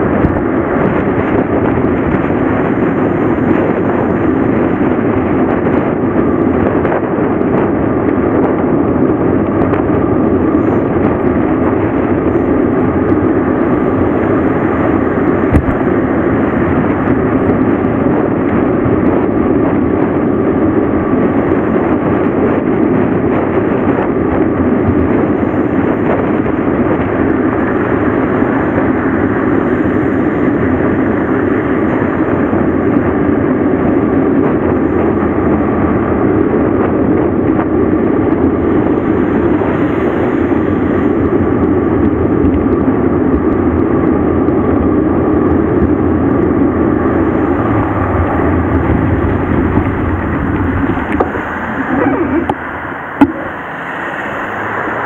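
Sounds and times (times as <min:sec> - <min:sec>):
bicycle tyre noise on road: 0:00.0 - 0:55.0
wind rushing: 0:00.0 - 0:55.0.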